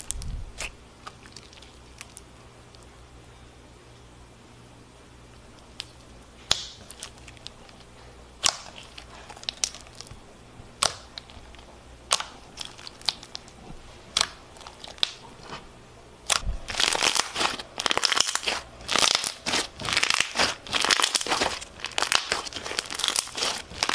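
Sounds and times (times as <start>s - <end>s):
slime crackling and crunching: 6.5s - 10.2s, 10.8s - 15.6s, 16.2s - 23.9s.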